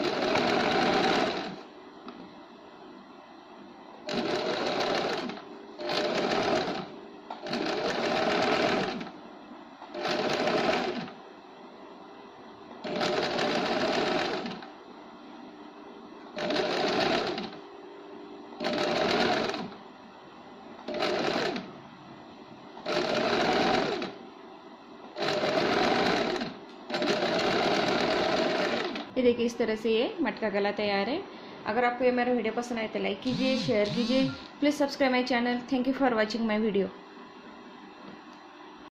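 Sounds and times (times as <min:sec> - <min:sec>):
sewing machine stitching: 0:00.0 - 0:01.6, 0:04.1 - 0:09.1, 0:09.9 - 0:11.2, 0:12.8 - 0:14.6, 0:16.4 - 0:17.6, 0:18.6 - 0:19.8, 0:20.9 - 0:21.7, 0:22.8 - 0:24.2, 0:25.2 - 0:29.1, 0:33.3 - 0:34.5.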